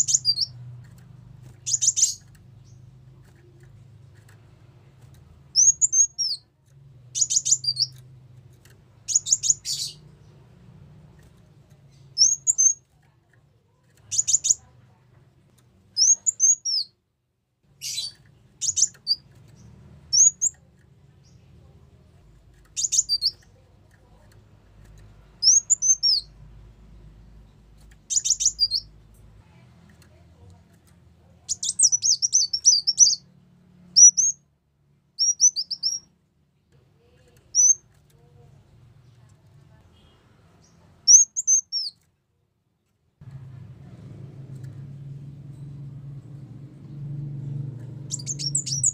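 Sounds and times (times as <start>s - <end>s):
sunbird chirping: 0.0s - 0.6s, 1.5s - 2.8s, 5.5s - 6.4s, 7.2s - 8.0s, 9.1s - 10.2s, 16.0s - 16.9s, 17.8s - 20.6s, 22.7s - 23.4s, 25.4s - 26.3s, 28.1s - 28.9s, 31.4s - 33.3s, 33.9s - 34.4s, 35.2s - 36.1s, 40.0s - 42.0s, 46.3s - 48.9s
faint low hum: 0.0s - 48.9s.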